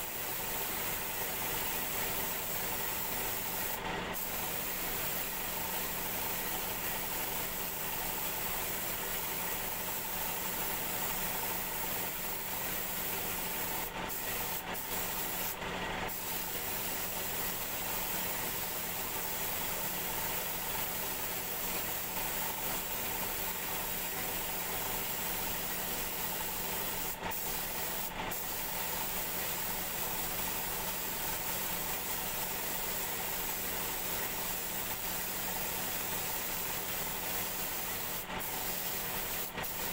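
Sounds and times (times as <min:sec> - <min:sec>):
paint spray gun hissing: 0:00.0 - 0:39.9.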